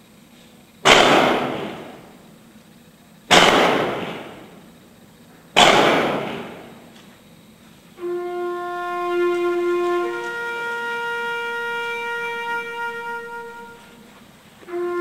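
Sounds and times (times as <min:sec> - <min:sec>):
rifle volleys: 0:00.8 - 0:02.3, 0:03.3 - 0:04.7, 0:05.6 - 0:07.1.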